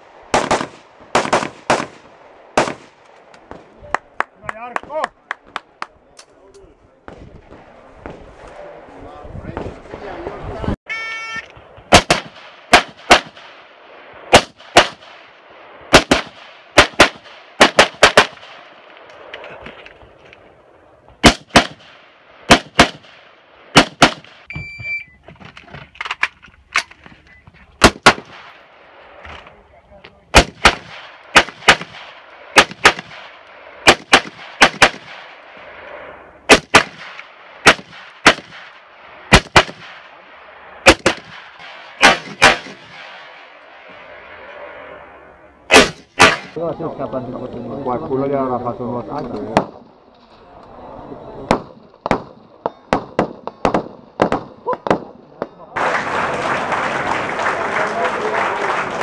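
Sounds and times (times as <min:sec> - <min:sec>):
rifle shots with echo: 0:00.1 - 0:03.8, 0:11.9 - 0:19.3, 0:21.2 - 0:24.5, 0:27.8 - 0:29.0, 0:30.3 - 0:35.6, 0:36.5 - 0:44.4, 0:45.7 - 0:46.6, 0:51.5 - 0:55.5.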